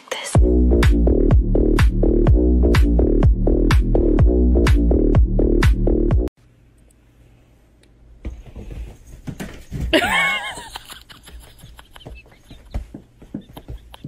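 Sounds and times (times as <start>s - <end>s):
soft taps and rustles: 11.2s - 14.0s.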